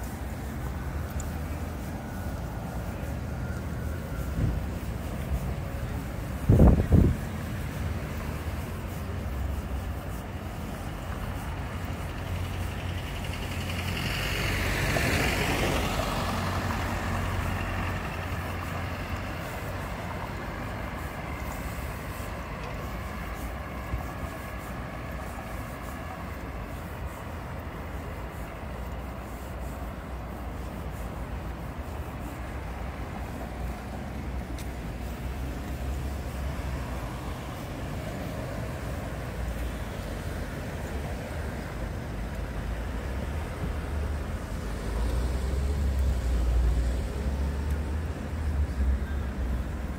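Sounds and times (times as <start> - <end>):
vehicle passing close: 0.0 - 26.4
traffic rumble: 0.0 - 49.9.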